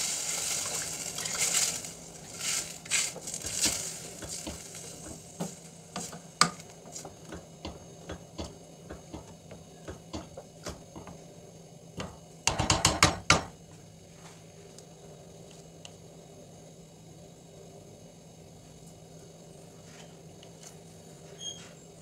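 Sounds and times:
wooden spoon stirring in pot: 0:00.0 - 0:11.2
spoon knocking against metal pot: 0:12.0 - 0:13.5.

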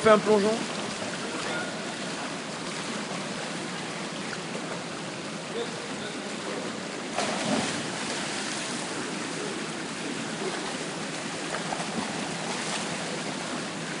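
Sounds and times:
swimming strokes splashing: 0:07.0 - 0:13.7
dive splashing into pool: 0:07.1 - 0:10.9.

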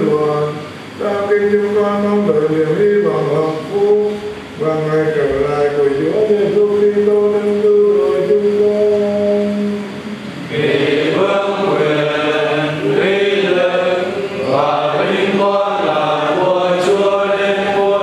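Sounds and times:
choir singing a chant: 0:10.4 - 0:18.0.

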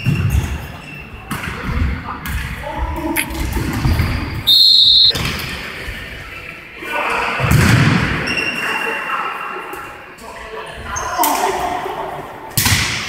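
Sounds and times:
referee's whistle blast: 0:04.5 - 0:05.2.

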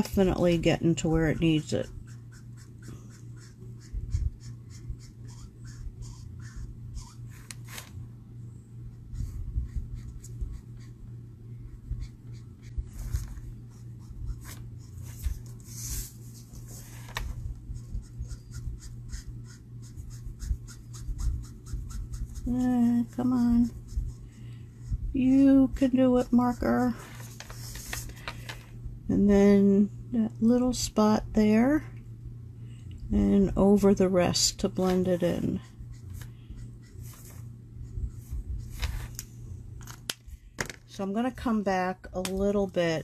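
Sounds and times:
low steady hum: 0:00.0 - 0:43.0
marker scratching on cardstock: 0:01.0 - 0:07.8, 0:17.7 - 0:24.3.

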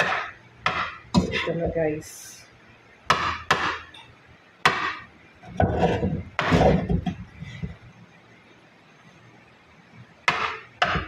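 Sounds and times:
spatula knocking and scraping wok: 0:00.0 - 0:01.8, 0:03.1 - 0:03.9, 0:04.6 - 0:07.8, 0:10.2 - 0:11.0.

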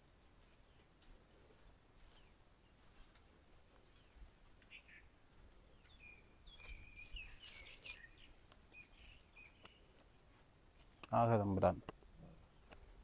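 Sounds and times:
bird chirps and whistles: 0:06.5 - 0:09.8.

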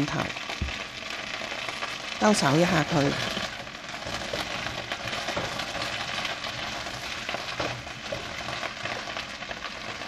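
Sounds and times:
chicken wings sizzling in a wok: 0:00.0 - 0:10.0
spatula scraping and knocking pan: 0:02.6 - 0:10.0.

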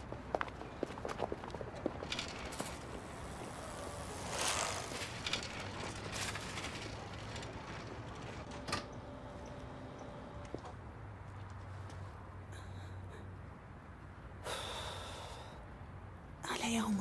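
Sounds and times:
bicycle clicking: 0:01.1 - 0:08.7.

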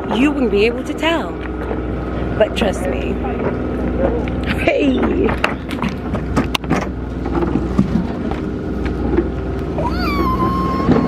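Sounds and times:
boat engine idling: 0:00.0 - 0:11.0
rising high tone: 0:09.8 - 0:11.0.

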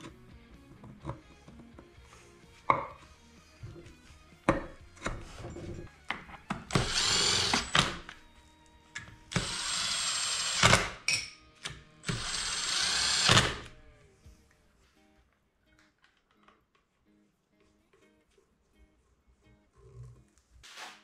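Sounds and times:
power tool motor whining: 0:06.7 - 0:08.2, 0:09.3 - 0:11.0, 0:12.0 - 0:13.8.

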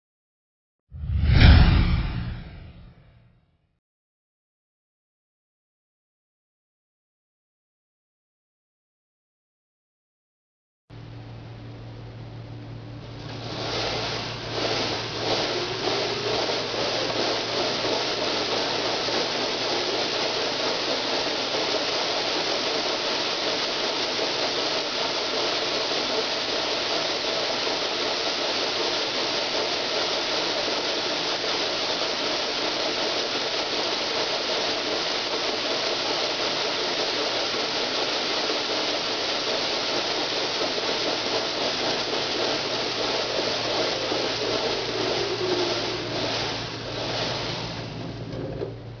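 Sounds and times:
mixer rattling granules: 0:13.3 - 0:48.1.

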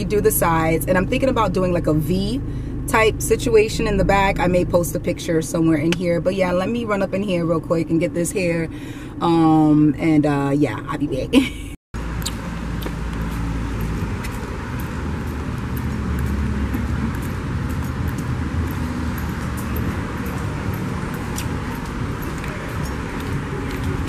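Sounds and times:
road traffic rumble: 0:00.0 - 0:24.0
sandal footsteps on pavement: 0:12.0 - 0:24.0.

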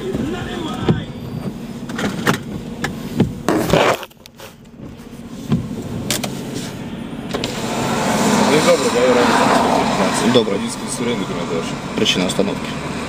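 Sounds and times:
clicks and knocks in car: 0:00.0 - 0:06.4.

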